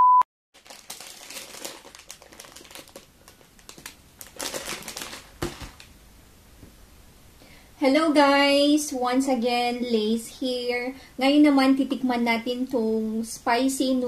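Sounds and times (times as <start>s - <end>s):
short steady beep: 0.0s - 0.2s
plastic wrapper crinkling: 0.6s - 6.0s.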